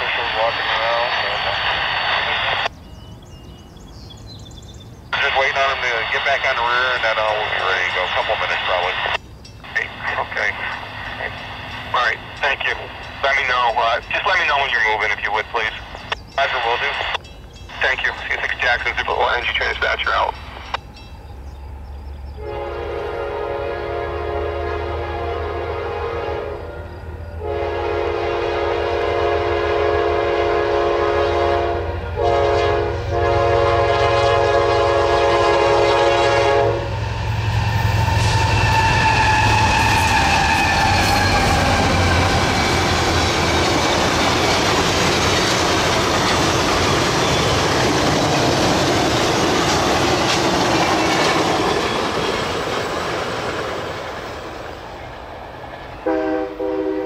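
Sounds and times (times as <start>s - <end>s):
locomotive engine rumble and whine: 0.0s - 57.0s
train cars rushing and clattering: 6.0s - 23.0s, 28.6s - 57.0s
locomotive horn: 22.3s - 42.8s, 56.0s - 57.0s.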